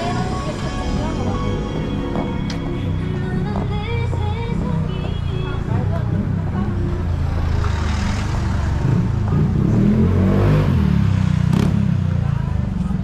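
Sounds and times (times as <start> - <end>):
car driving past: 6.7 - 11.7.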